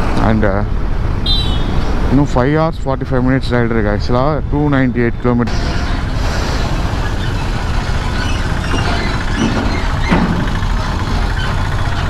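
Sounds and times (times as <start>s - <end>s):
traffic engines and road noise: 0.0s - 12.0s
motorcycle engine running: 5.5s - 12.0s
short sliding squeals: 5.5s - 12.0s.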